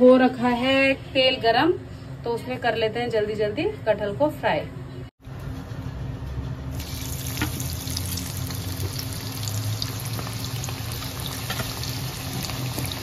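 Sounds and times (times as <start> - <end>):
food deep-frying in oil: 6.8 - 13.0.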